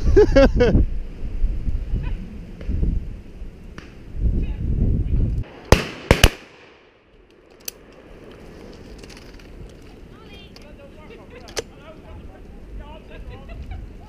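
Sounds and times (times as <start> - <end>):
wind rumble on microphone: 0.0 - 5.5, 8.2 - 14.0
shotgun shots: 5.5 - 7.0.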